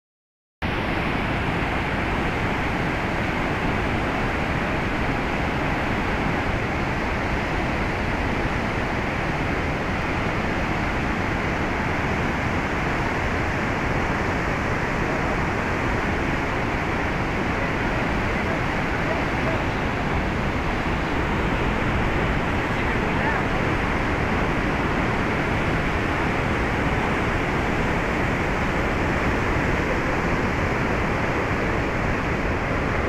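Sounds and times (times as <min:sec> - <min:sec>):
river rushing over rocks: 0:00.6 - 0:33.0.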